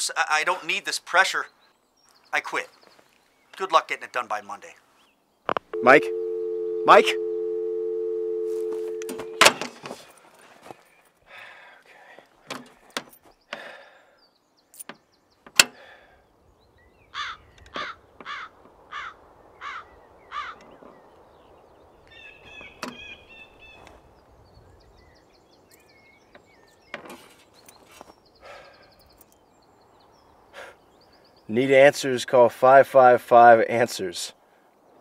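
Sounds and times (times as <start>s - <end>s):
faint birdsong: 0.0s - 35.0s
crow cawing: 17.1s - 20.7s.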